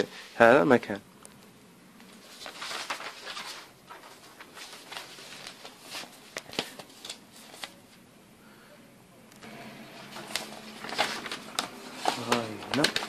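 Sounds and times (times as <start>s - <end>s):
paper crinkling: 2.0s - 8.0s, 10.0s - 13.0s
paper pages rustling: 2.0s - 8.0s, 9.4s - 13.0s.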